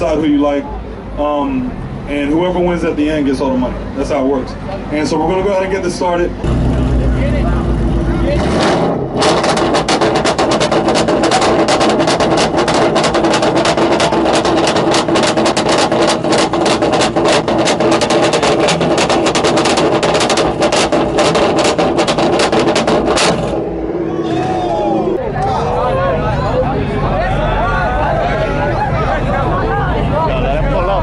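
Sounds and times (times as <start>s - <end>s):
car exhaust drone at high revs: 6.4s - 24.2s
exhaust crackling pops: 7.9s - 23.8s.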